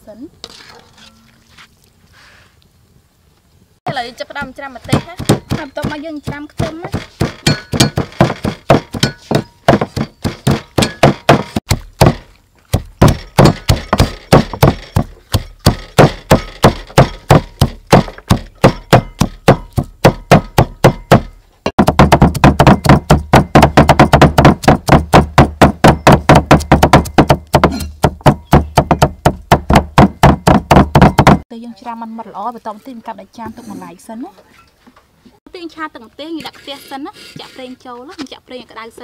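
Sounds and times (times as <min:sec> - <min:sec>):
cleavers chopping on wooden boards: 0:03.9 - 0:31.5.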